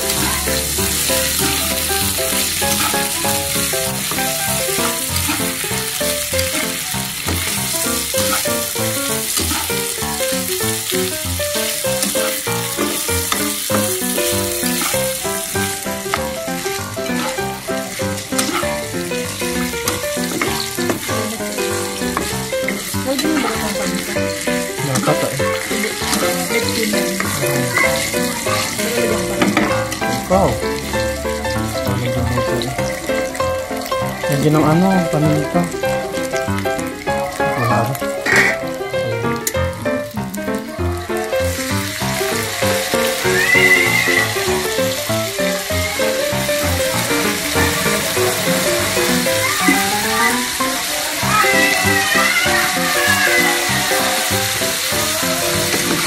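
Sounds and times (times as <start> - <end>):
metal spatula stirring in pan: 0.0 - 32.0
food sizzling in oil: 0.0 - 56.0.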